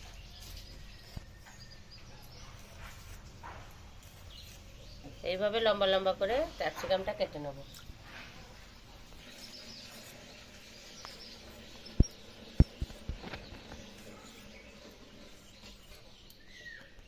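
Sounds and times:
faint bird chirps: 9.2 - 17.0.

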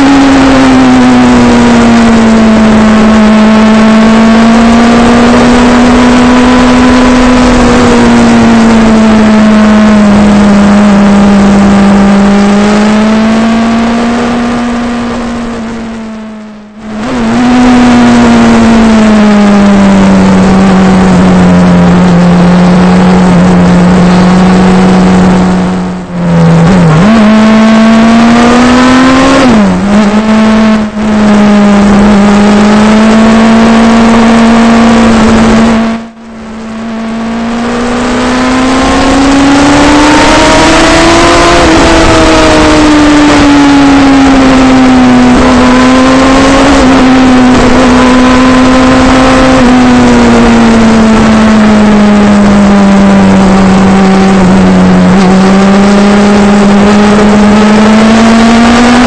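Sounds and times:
motorcycle engine running: 0.0 - 59.0
road and wind noise: 0.0 - 59.0.

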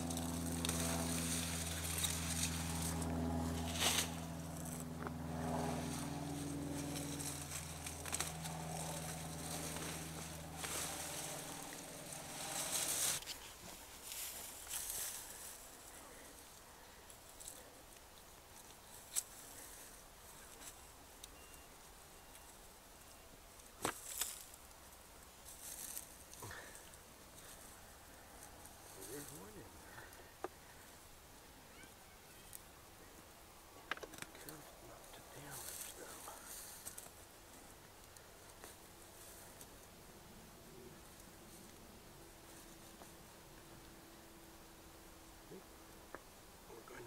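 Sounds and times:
hands rummaging through straw: 0.0 - 4.8, 5.6 - 16.3
straw crackling: 0.0 - 19.7
leaves rustling: 0.0 - 33.1, 34.4 - 44.2
low mechanical hum: 0.0 - 47.0.

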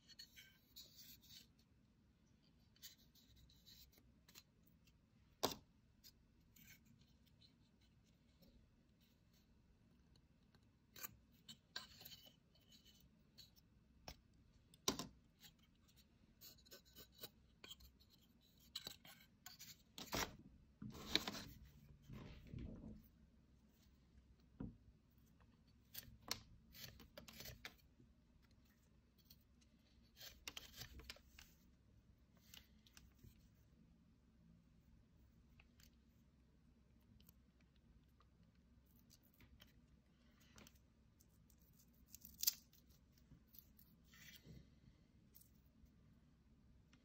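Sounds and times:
knife shaving wood: 15.4 - 20.2, 25.8 - 27.9, 28.6 - 31.6, 41.4 - 44.4.

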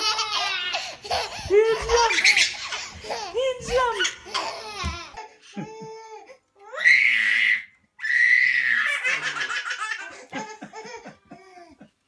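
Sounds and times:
baby laughing: 0.0 - 6.3, 8.7 - 12.0.

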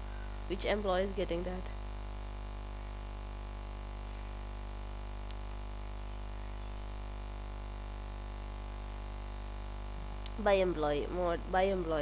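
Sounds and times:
electrical hum: 0.0 - 12.0
faint tick: 5.2 - 5.4.

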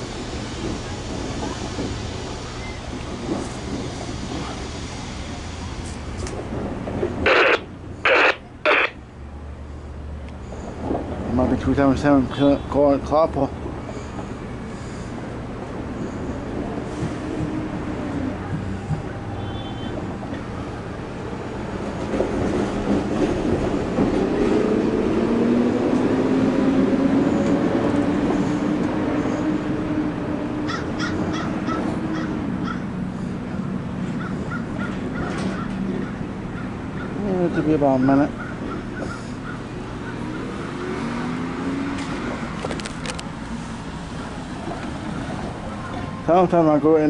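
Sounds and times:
passing vehicle rumble: 5.0 - 47.0.

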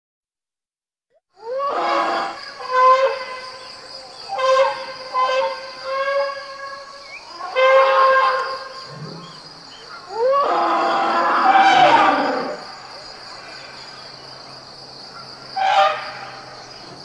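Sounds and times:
elephants trumpeting: 1.4 - 3.7, 4.3 - 12.7, 15.4 - 16.6.

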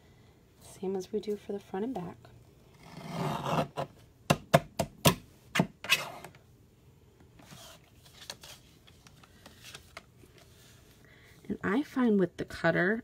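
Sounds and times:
blade scraping rasp: 2.8 - 3.8
paper rustling: 7.4 - 11.0.

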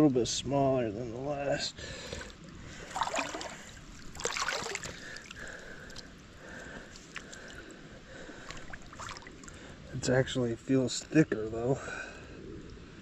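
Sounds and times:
creek water gurgling: 1.8 - 10.1.

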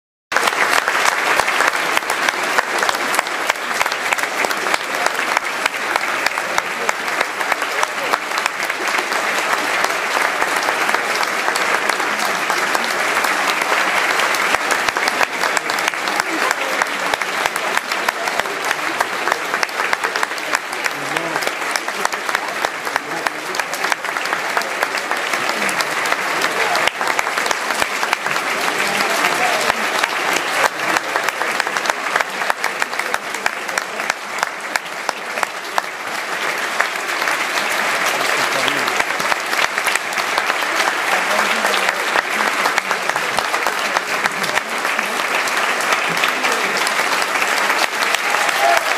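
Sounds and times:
audience applauding: 0.3 - 48.9.

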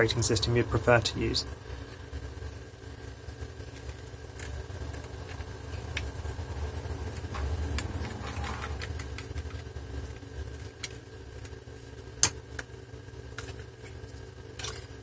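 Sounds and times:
low digger hum: 0.0 - 11.9.

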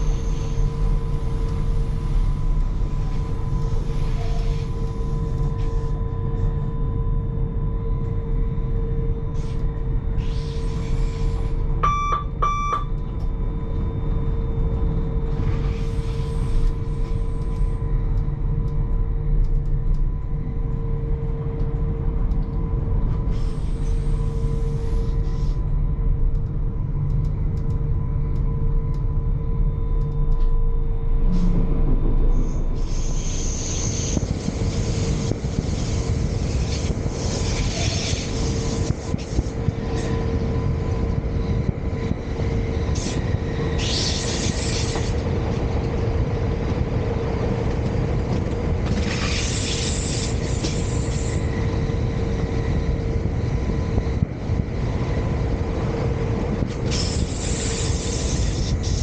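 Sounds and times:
electric train rumbling: 0.0 - 59.0
short electronic beeps: 11.8 - 12.9.

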